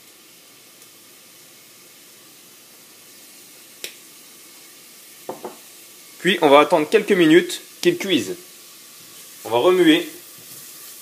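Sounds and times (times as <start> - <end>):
onion and garlic sizzling in oil: 0.0 - 11.0.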